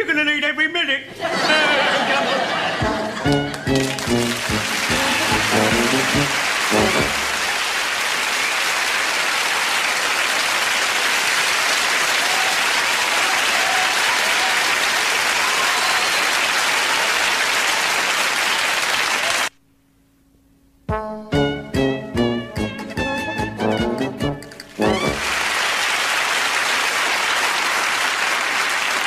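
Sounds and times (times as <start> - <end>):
studio audience applauding: 2.4 - 19.5, 24.7 - 29.0.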